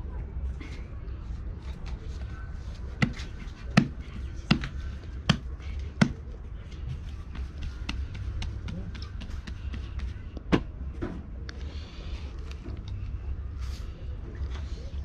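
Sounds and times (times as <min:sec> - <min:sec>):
light pats on dough: 0:02.7 - 0:10.7.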